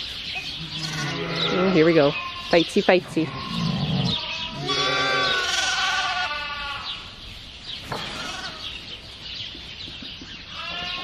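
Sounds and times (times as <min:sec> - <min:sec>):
sheep bleating: 0:00.6 - 0:02.6, 0:03.2 - 0:07.0, 0:10.5 - 0:11.0.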